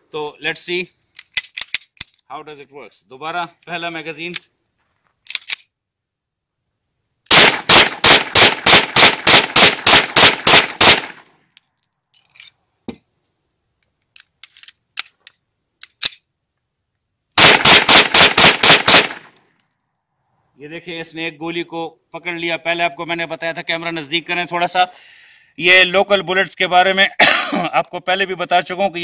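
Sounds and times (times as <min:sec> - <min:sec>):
rapid pistol shots: 0:07.3 - 0:11.2, 0:17.4 - 0:19.3.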